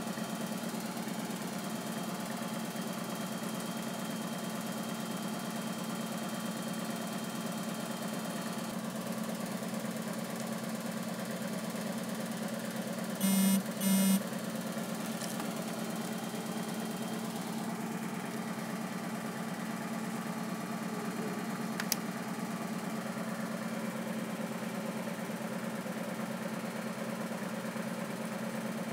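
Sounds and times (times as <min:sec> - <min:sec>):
short electronic beeps: 0:13.2 - 0:14.2
low mechanical hum: 0:13.2 - 0:14.3
sharp click: 0:21.8 - 0:22.0.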